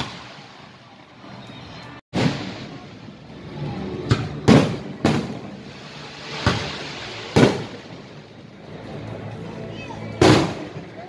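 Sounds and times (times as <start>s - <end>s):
fireworks bangs: 2.1s - 8.4s, 10.2s - 11.0s.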